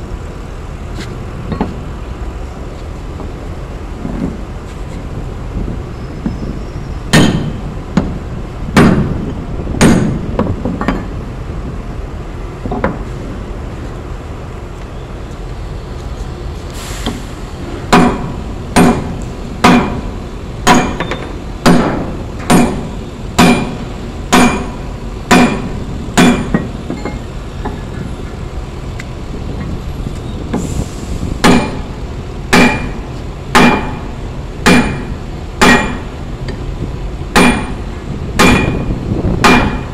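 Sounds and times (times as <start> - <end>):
hammer clanking on steel: 7.1 - 8.2, 8.8 - 9.1, 9.8 - 11.1, 17.9 - 27.9, 31.4 - 36.1, 37.4 - 37.8, 38.4 - 39.9.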